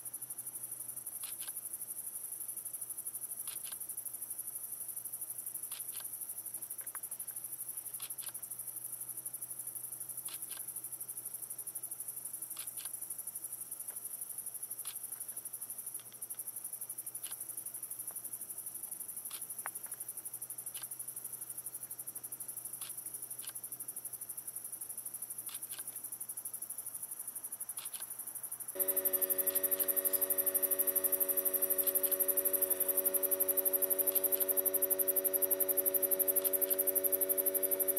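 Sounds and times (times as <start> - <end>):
night insects trilling: 25.4 - 37.9.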